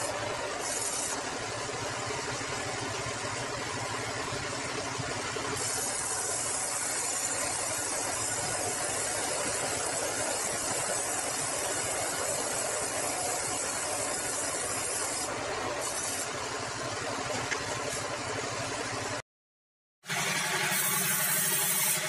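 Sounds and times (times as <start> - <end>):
saw blade hiss cutting log: 0.0 - 1.8, 5.4 - 16.4, 20.1 - 22.0
band saw machine drone: 20.0 - 22.0.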